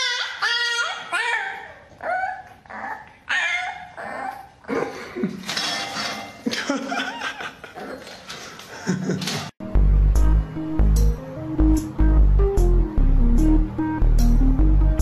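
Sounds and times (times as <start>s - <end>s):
puppy yowling and whining: 0.0s - 4.6s.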